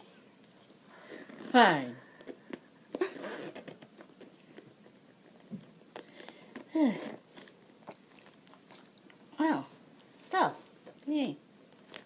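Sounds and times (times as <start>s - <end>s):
zipper of a pouch opening: 3.0s - 3.9s.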